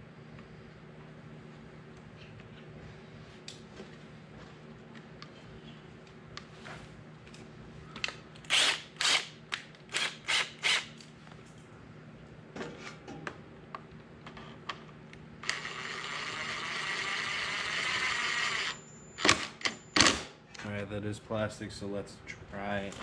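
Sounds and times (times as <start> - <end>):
cordless driver motor running: 15.4 - 18.8.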